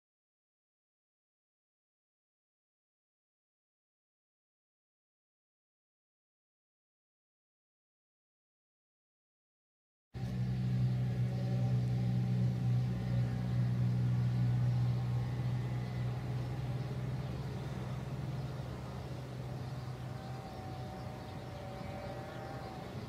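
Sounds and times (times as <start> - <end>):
low hum: 10.2 - 23.0.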